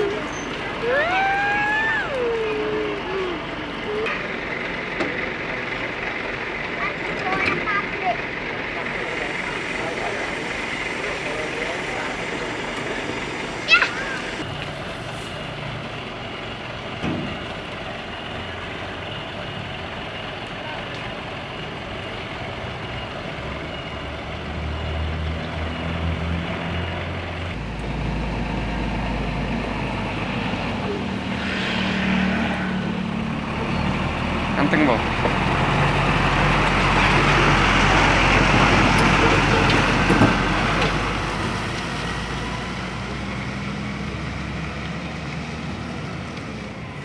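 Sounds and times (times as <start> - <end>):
diesel truck engine running: 0.0 - 47.0
truck driving on road: 0.0 - 47.0.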